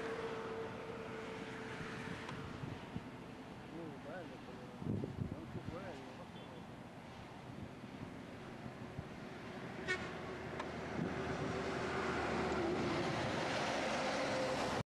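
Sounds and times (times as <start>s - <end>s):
truck passing close: 0.0s - 3.9s, 7.1s - 14.8s
truck horn toot: 9.8s - 10.2s.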